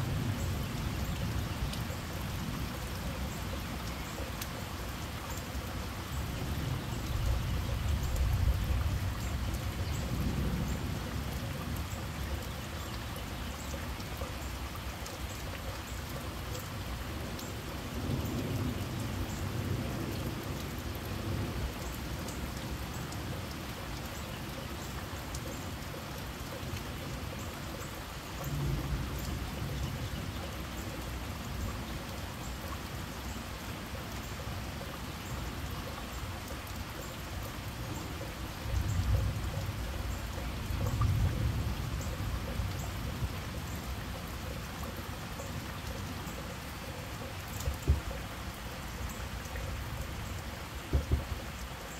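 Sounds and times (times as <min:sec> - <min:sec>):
heavy rain on foliage: 0:00.0 - 0:51.9
drips ticking: 0:00.1 - 0:51.9.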